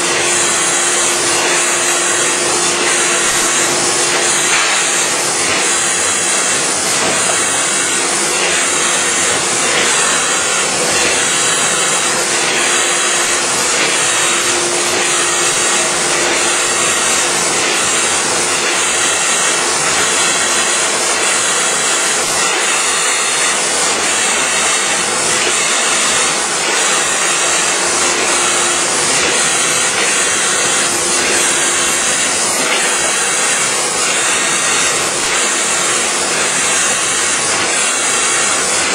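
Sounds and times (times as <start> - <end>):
printing machine hissing: 0.0 - 38.9.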